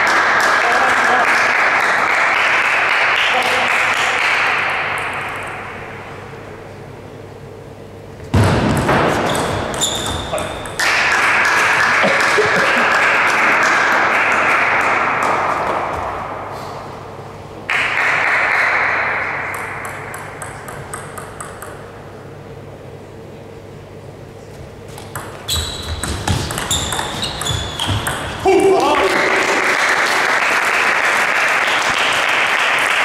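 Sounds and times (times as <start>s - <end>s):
table tennis ball bouncing: 4.3s - 6.1s, 8.3s - 15.9s, 17.9s - 22.1s, 25.0s - 28.9s.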